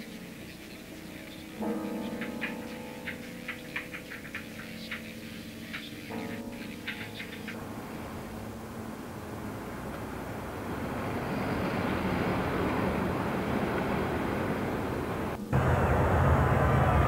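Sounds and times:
rushing rumble: 7.6s - 17.0s.

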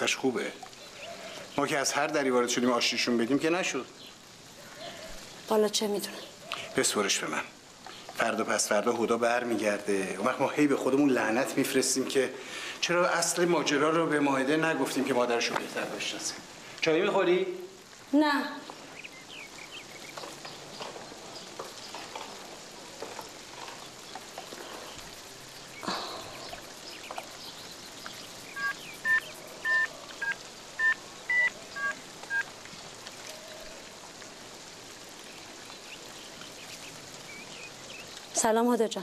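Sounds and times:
phone keypad beeps: 28.6s - 32.5s.

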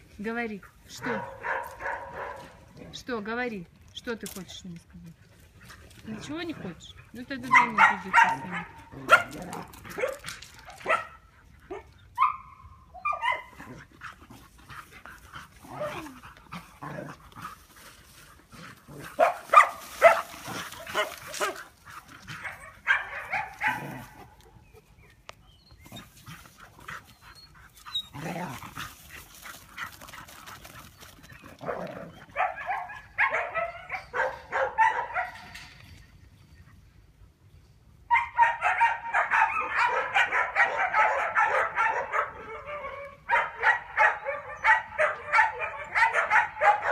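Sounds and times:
dogs barking: 0.9s - 2.7s, 7.1s - 13.8s, 18.6s - 24.6s, 31.6s - 35.6s, 38.1s - 46.9s.

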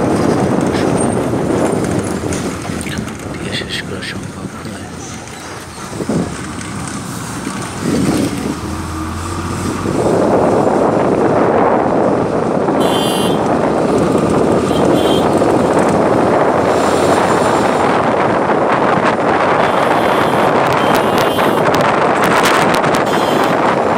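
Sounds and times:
road noise inside vehicle: 0.0s - 23.9s
wind buffeting microphone: 0.0s - 23.9s.

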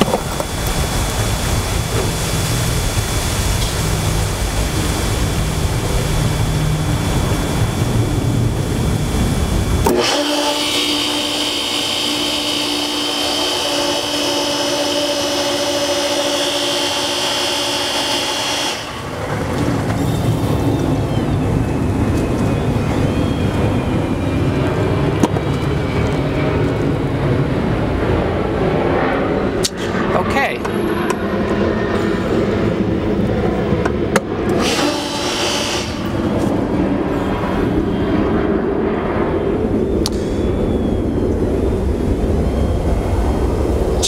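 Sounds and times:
pool pump motor humming: 0.0s - 25.3s.

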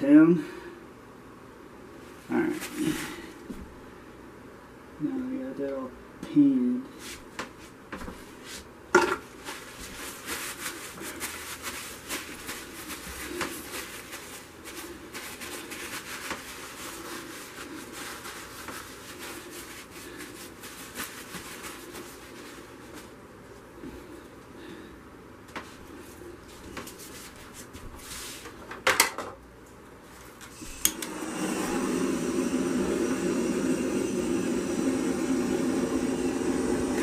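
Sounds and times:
paper towel crinkling and rubbing: 2.0s - 3.4s, 9.3s - 23.6s, 25.7s - 28.6s.

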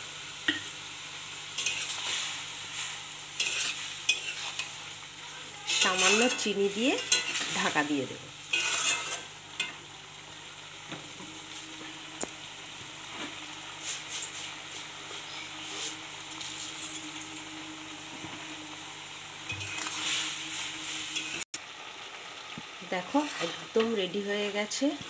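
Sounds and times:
vegetables sizzling in oil: 0.0s - 25.0s
metal spatula stirring: 1.6s - 5.0s, 5.6s - 7.9s, 8.5s - 9.8s, 19.5s - 21.4s, 23.1s - 24.0s.

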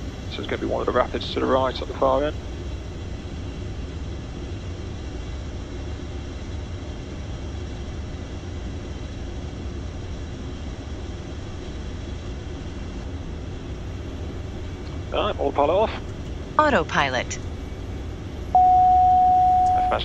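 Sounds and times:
jet cockpit rumble: 0.0s - 20.0s
faint high whine: 16.6s - 20.0s.

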